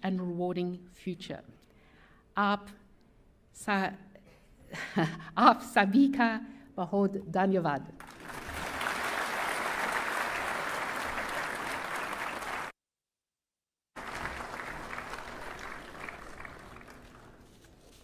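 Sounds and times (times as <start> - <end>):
audience applauding: 8.0 - 12.7, 14.0 - 17.4.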